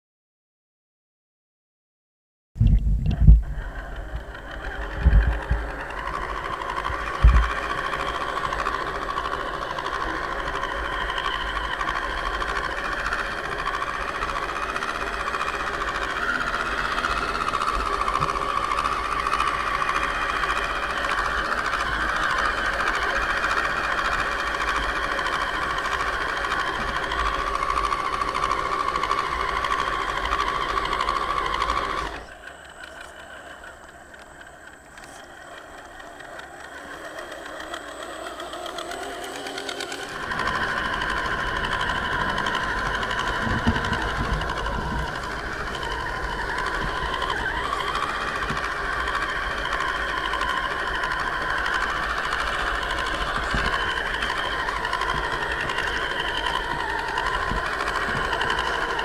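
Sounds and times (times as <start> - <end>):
low thumps: 2.6 - 3.6
electric motor and gearbox whining: 2.8 - 59.0.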